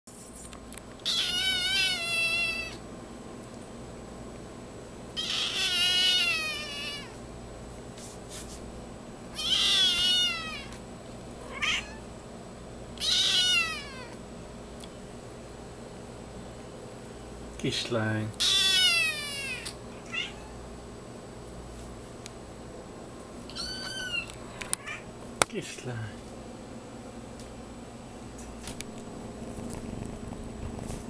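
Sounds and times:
kitten meowing: 0:01.0 - 0:02.8, 0:05.2 - 0:07.2, 0:09.3 - 0:10.8, 0:11.5 - 0:12.0, 0:13.0 - 0:14.2, 0:18.4 - 0:20.6, 0:23.5 - 0:25.1.

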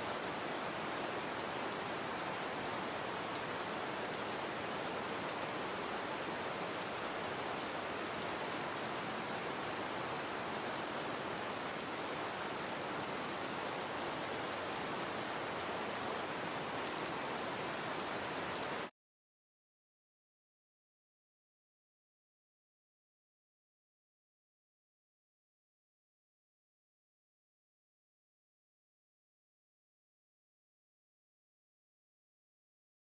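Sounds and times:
gentle rain falling: 0:00.0 - 0:18.9.

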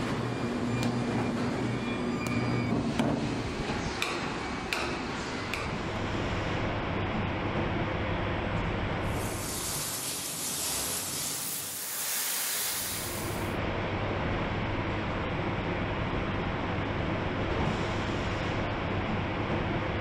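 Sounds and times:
spray nozzles hissing: 0:09.2 - 0:13.5.

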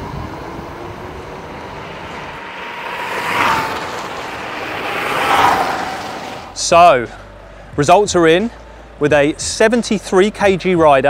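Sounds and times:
electric motor whine: 0:00.0 - 0:06.6
rushing wind noise: 0:00.0 - 0:06.8.

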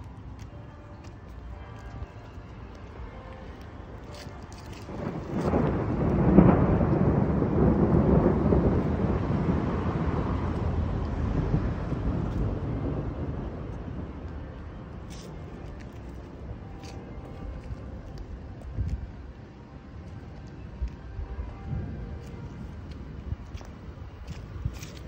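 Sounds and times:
rolling thunder: 0:04.9 - 0:15.6.

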